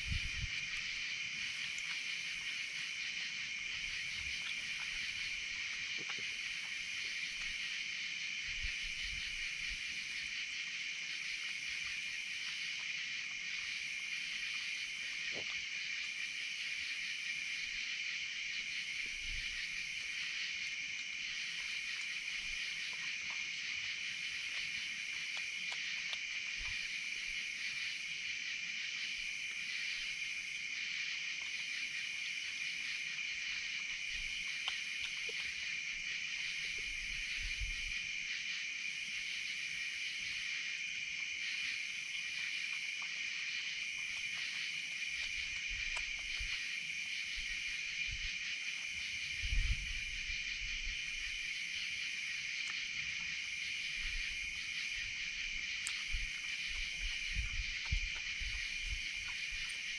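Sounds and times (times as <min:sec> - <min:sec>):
crickets buzzing: 0:00.0 - 0:59.9
higher insect call: 0:00.0 - 0:59.9
faint clicks: 0:55.8 - 0:59.8.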